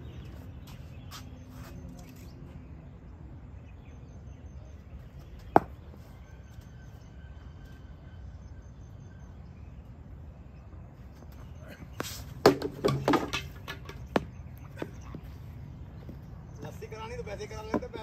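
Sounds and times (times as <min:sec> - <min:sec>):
cricket ball striking bat: 0:05.5 - 0:05.8.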